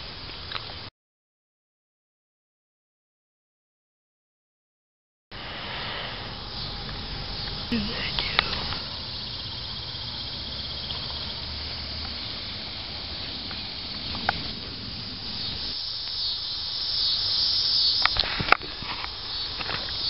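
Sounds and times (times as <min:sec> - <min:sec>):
insects trilling: 0:05.4 - 0:20.0.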